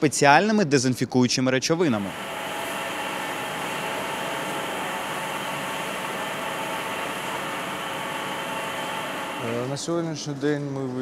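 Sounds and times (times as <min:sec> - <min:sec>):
machinery hiss: 0:02.0 - 0:09.9.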